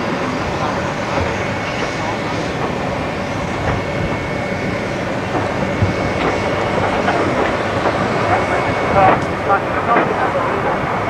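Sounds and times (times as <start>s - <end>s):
train running noise: 0.0s - 11.0s.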